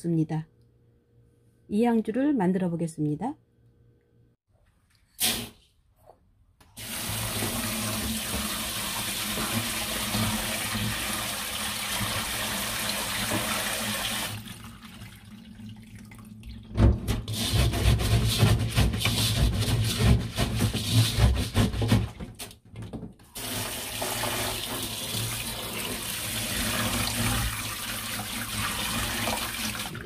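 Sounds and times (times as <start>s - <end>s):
tap running into metal sink: 7.4s - 10.4s
hands scrubbing wet grain: 17.3s - 21.8s.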